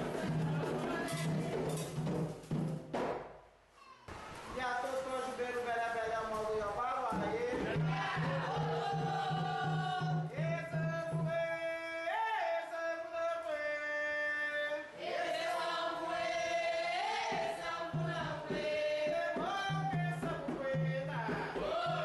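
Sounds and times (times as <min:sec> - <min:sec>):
voices chanting together: 0:07.2 - 0:10.4, 0:14.8 - 0:22.0.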